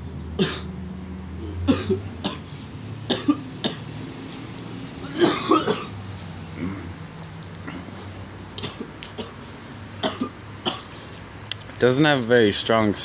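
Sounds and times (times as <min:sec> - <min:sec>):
man coughing: 0:01.6 - 0:02.4, 0:03.1 - 0:03.8, 0:05.1 - 0:05.9, 0:10.0 - 0:10.9.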